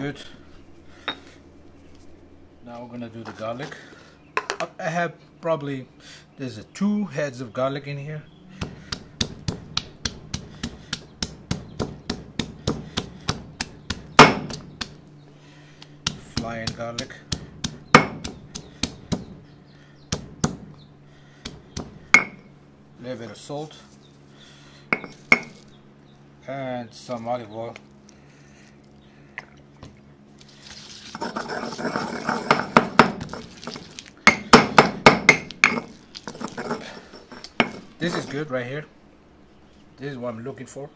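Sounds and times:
stone pestle pounding garlic: 8.6s - 15.0s, 16.0s - 19.4s, 20.1s - 20.7s, 31.2s - 38.4s.

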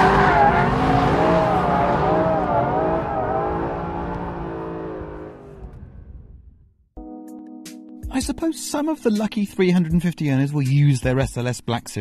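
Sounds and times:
car engine revving: 0.0s - 6.5s.

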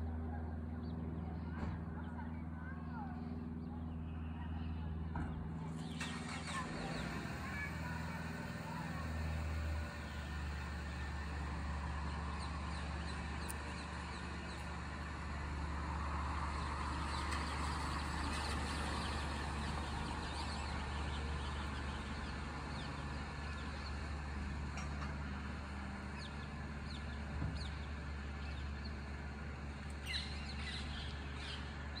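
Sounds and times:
distant traffic hum: 0.0s - 32.0s.

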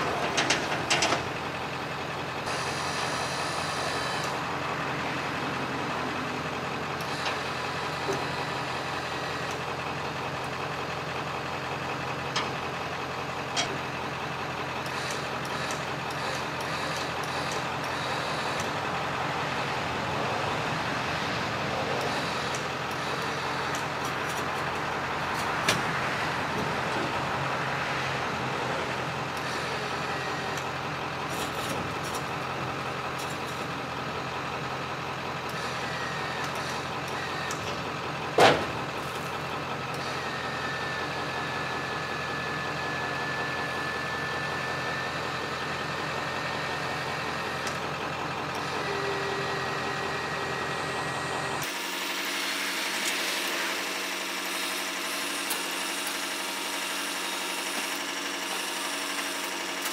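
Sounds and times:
truck engine idling: 0.0s - 59.9s.

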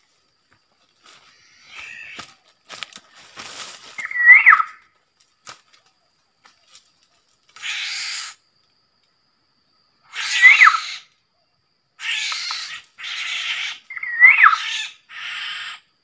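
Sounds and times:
palm fronds rustling: 0.0s - 7.6s
bird call rising and dropping: 4.0s - 4.8s.

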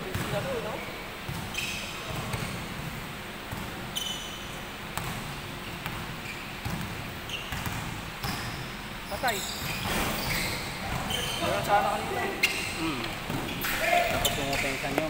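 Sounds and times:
basketball bouncing on wooden floor: 0.0s - 0.4s, 5.0s - 8.5s
sneaker squeaks: 0.0s - 15.0s.

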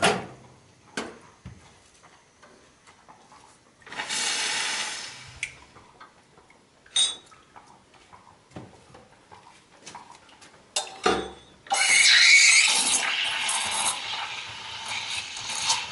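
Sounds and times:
metal jugs and cups clinking: 6.9s - 7.4s.

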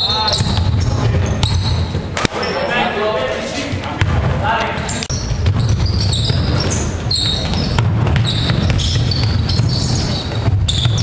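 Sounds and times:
basketball and feet thudding: 0.0s - 2.4s, 3.7s - 11.0s
sneakers squeaking: 0.0s - 11.0s.

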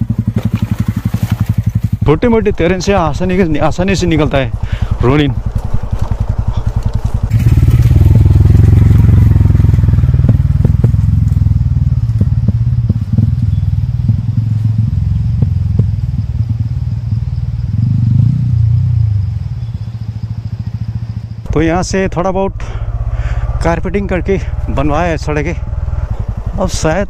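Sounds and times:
knocks and clatter from bike: 0.0s - 2.1s, 4.2s - 16.8s
motorcycle engine running: 0.0s - 27.0s.

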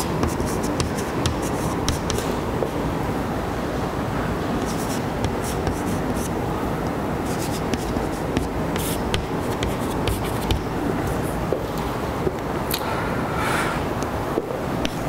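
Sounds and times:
chalk scratching on blackboard: 0.0s - 2.4s, 4.6s - 6.4s, 7.2s - 11.3s
low background noise: 0.0s - 15.0s.

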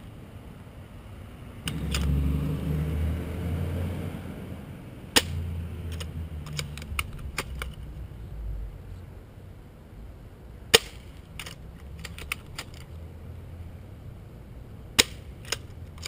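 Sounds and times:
airsoft rifle shot: 10.7s - 11.1s, 15.0s - 15.3s.

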